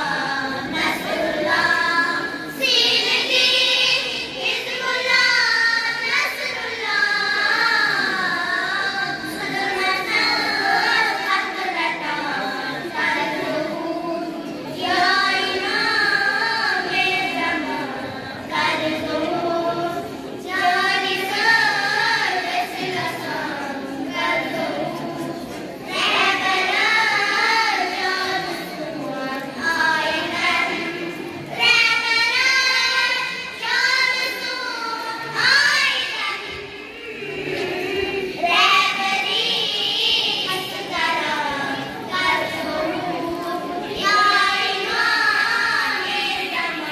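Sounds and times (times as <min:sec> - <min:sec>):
girls singing into microphones: 0:00.0 - 0:46.9.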